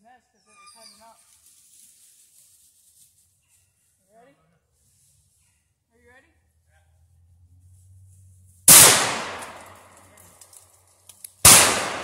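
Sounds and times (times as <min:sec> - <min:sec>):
gunshots with long echo: 0:08.7 - 0:09.9, 0:11.4 - 0:12.0.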